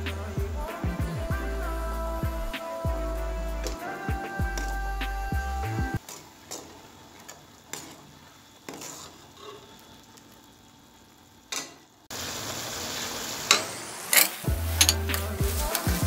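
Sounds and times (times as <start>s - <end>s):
steady sizzle: 0.0s - 16.0s
metal spoon stirring in a pot: 6.0s - 9.9s, 13.5s - 15.9s.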